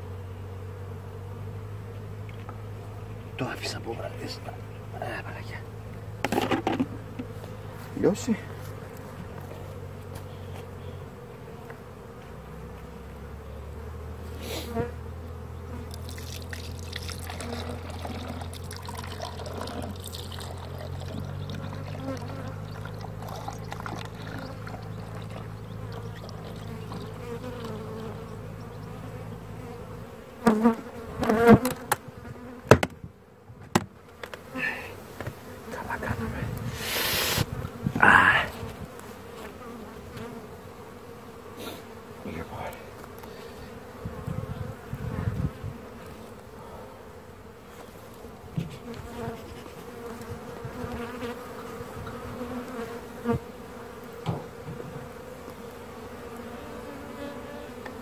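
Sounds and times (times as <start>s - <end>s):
honeybees buzzing: 0.0s - 58.0s
knocks on hive woodwork: 32.6s - 33.0s.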